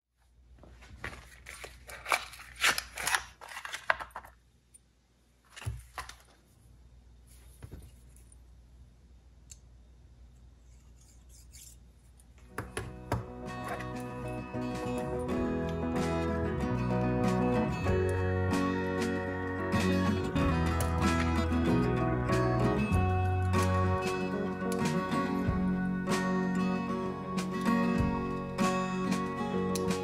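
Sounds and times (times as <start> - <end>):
spark plug packaging rattling: 1.4 - 4.4
guitar background music: 12.8 - 30.0.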